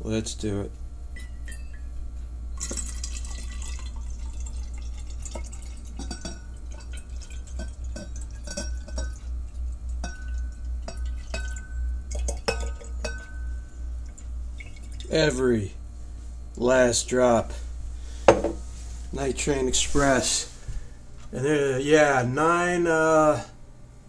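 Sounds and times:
liquid dripping: 0:02.6 - 0:15.4
wine glugging while poured: 0:02.6 - 0:15.4.

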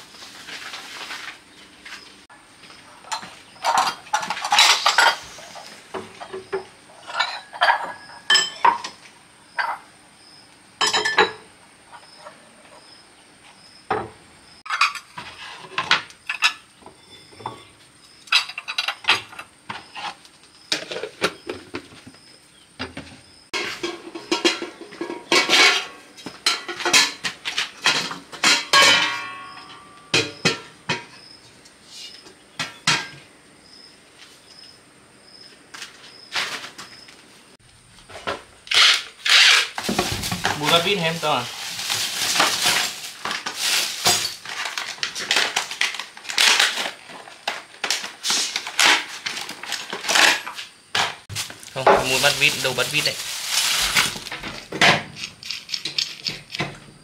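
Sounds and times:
hard objects clinking and clattering: 0:03.1 - 0:09.0, 0:38.8 - 0:56.8.

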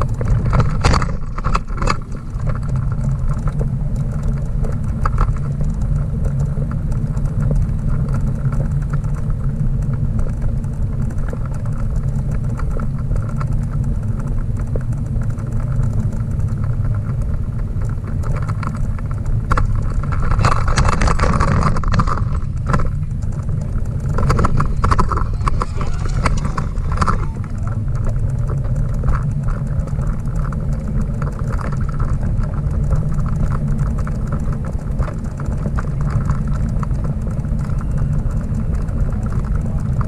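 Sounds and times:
trailer frame clicks and rattles: 0:00.0 - 0:40.0
trailer rolling on paved path: 0:00.0 - 0:40.0.

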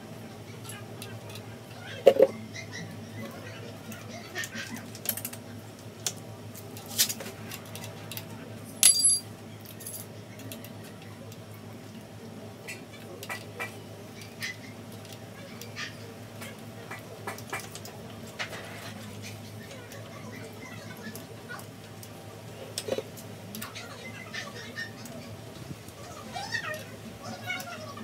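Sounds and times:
small metal clicks and ticks: 0:04.8 - 0:08.3
ringing metal clink: 0:08.8 - 0:10.0.

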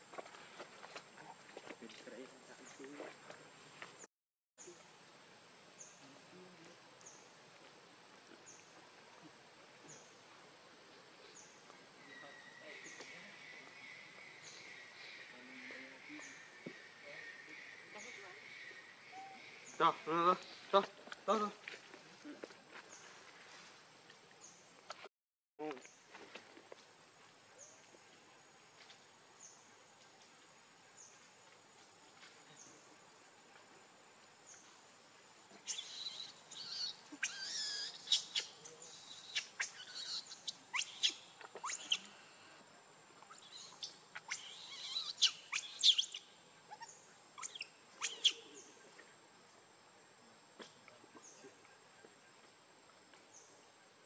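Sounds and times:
monkey screaming: 0:35.7 - 0:42.3, 0:43.3 - 0:48.4.

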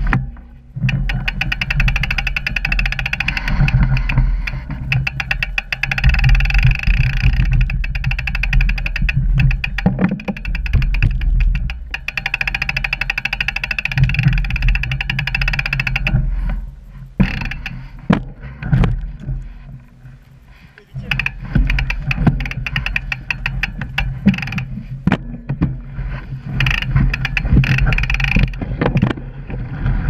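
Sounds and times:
freewheel hub ticking: 0:00.0 - 0:30.0
tyre and wind rumble: 0:00.0 - 0:30.0
bike knocking over rocks: 0:17.2 - 0:20.1, 0:20.8 - 0:30.0.

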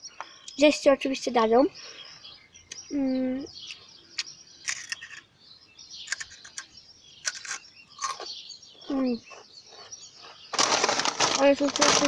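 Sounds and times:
chips crunching while chewed: 0:07.3 - 0:08.3.

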